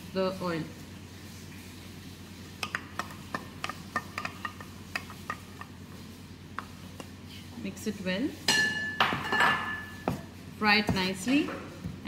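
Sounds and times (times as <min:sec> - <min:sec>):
onion frying in oil: 0:00.0 - 0:07.3
spatula tapping and scraping pan: 0:02.6 - 0:05.8.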